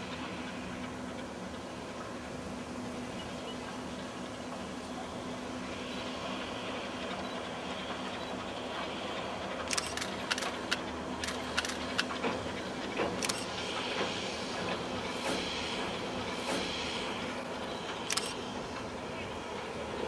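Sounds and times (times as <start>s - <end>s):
distant train rumble: 0.0s - 20.0s
sharp metallic clicks: 9.6s - 12.1s, 13.2s - 13.5s, 18.0s - 18.4s.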